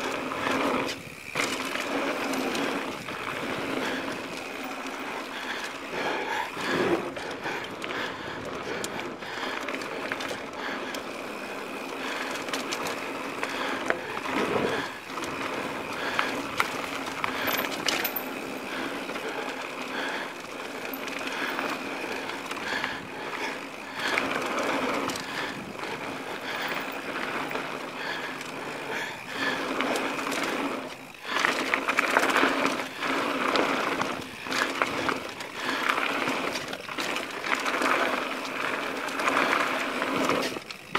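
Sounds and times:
bike rattling and knocking: 0.0 - 40.9
bike tyre rushing noise: 0.0 - 40.9
clatter across wooden bridge: 11.9 - 40.9.

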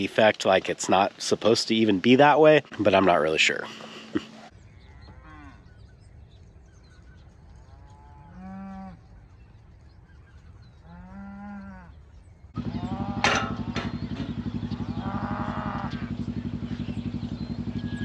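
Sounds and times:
cattle mooing: 10.8 - 12.0, 12.6 - 16.3
steady low rumble: 12.2 - 18.0.

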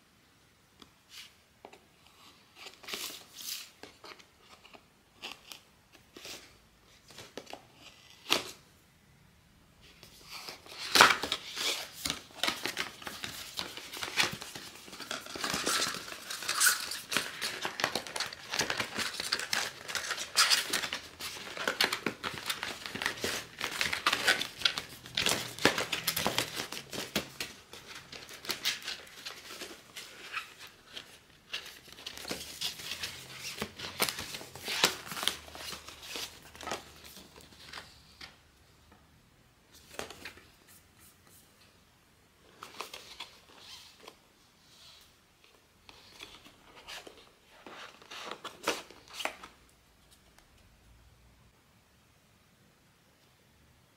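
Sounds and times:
packaging crinkling and tearing: 10.4 - 37.9.

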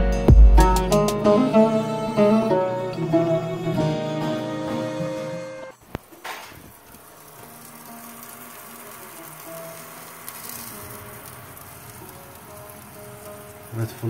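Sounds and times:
fish sizzling on baking tray: 5.8 - 14.0.

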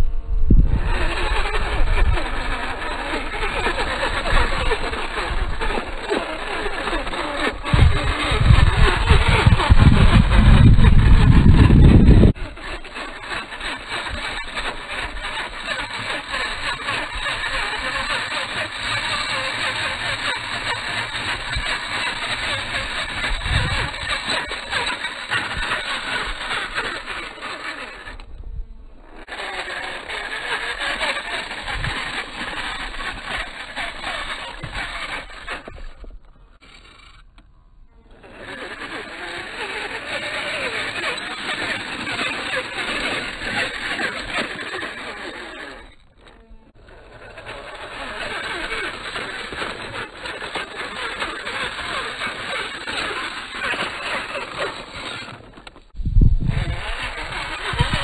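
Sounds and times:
wind rumble on microphone: 0.0 - 2.8, 7.6 - 12.6, 23.1 - 24.1, 56.0 - 58.0
rc car motor and gears: 0.7 - 28.3, 28.9 - 58.0
tyres scrabbling on stones: 0.8 - 28.3, 29.0 - 37.4, 38.1 - 58.0.

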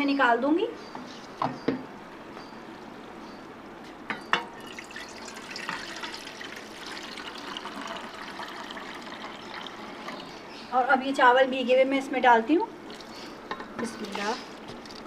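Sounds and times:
water pouring into a metal pot: 4.6 - 10.3.

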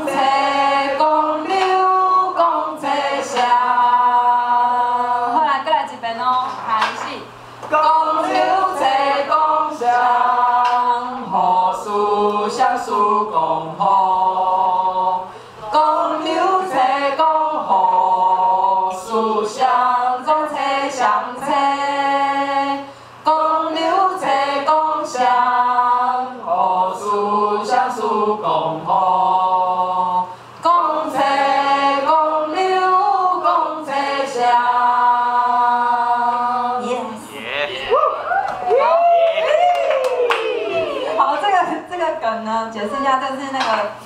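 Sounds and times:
group singing unaccompanied: 0.0 - 5.7, 7.6 - 37.6.

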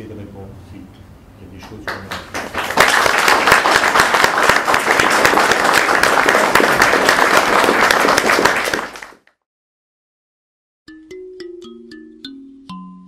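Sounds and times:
audience applauding: 1.7 - 9.3.

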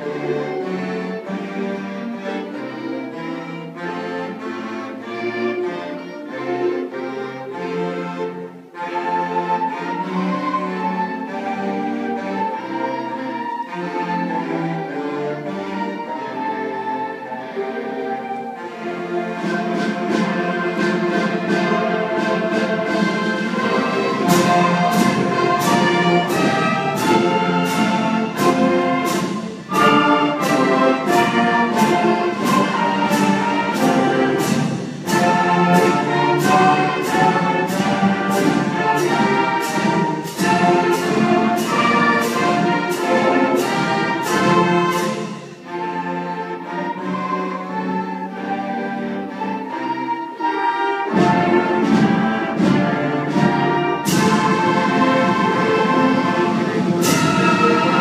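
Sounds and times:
concert band playing: 8.8 - 58.0
percussion beat: 19.7 - 45.7, 51.1 - 58.0.

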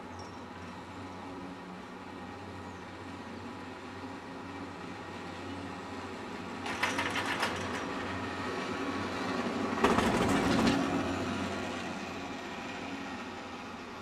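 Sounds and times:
chairlift chairs clattering over rollers: 6.6 - 8.2, 9.8 - 10.9.

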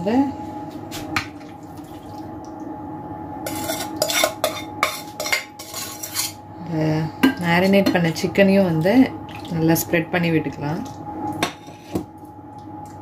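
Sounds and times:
steady hum: 0.0 - 13.0
spatula scraping metal saucepan: 3.5 - 6.4.

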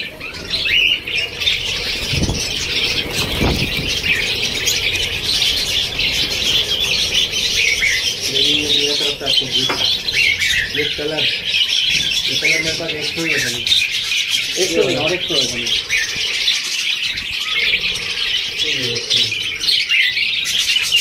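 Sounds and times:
budgerigars chattering: 0.0 - 21.0
low bumps: 0.2 - 14.0.

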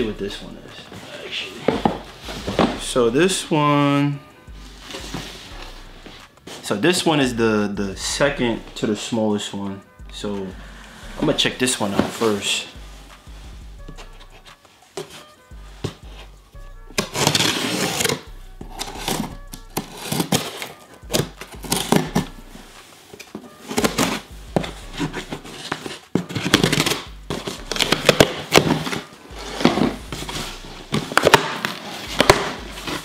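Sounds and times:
background music: 0.0 - 33.0
cardboard and tape ripping: 17.0 - 22.3, 25.0 - 33.0.

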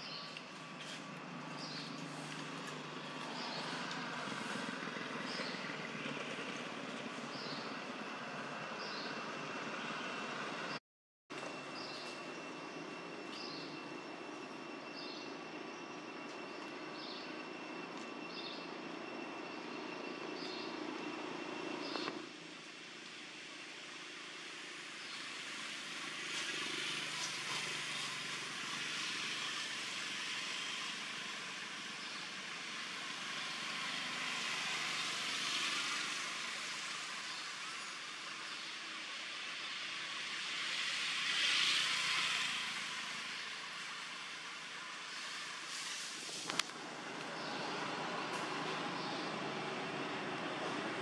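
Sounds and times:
outdoor rushing hiss: 22.2 - 50.2.

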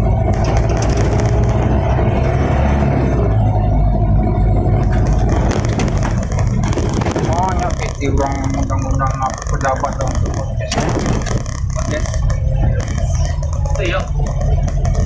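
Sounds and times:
cab clicking rattles: 0.0 - 2.5, 4.5 - 15.0
truck diesel engine running: 0.0 - 15.0.

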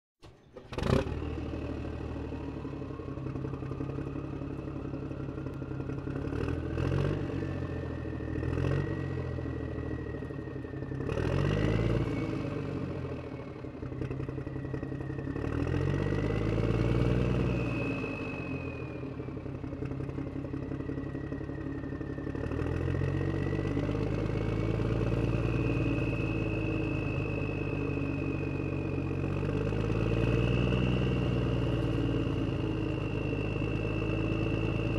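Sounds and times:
vehicle engine revving: 0.3 - 3.9, 5.4 - 9.8, 10.9 - 13.4, 14.0 - 20.2, 22.2 - 34.9
thin gliding whine: 17.4 - 34.9.

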